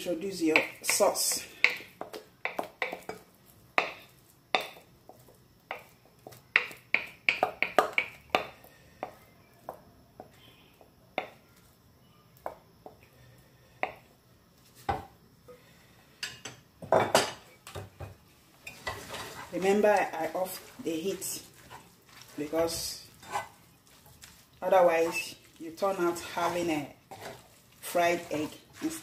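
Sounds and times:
utensil scraping glass bowl: 0:23.2 - 0:23.6.

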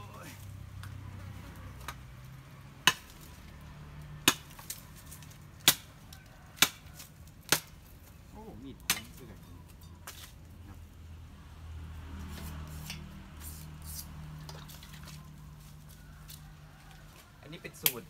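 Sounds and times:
machete chopping wood: 0:02.7 - 0:03.5, 0:04.1 - 0:07.9, 0:08.8 - 0:09.3, 0:17.7 - 0:18.0.

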